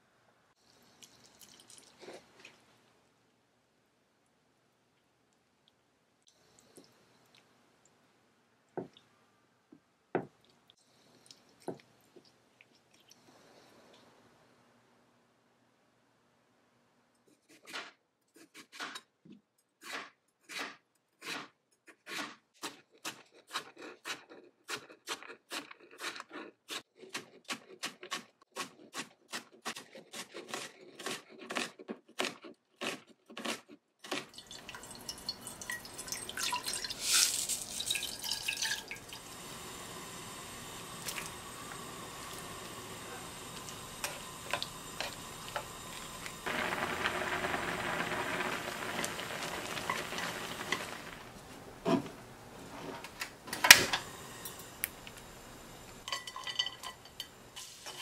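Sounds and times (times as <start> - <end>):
boiling water hiss: 34.4 - 52.3, 53.6 - 56.1, 56.7 - 58.0.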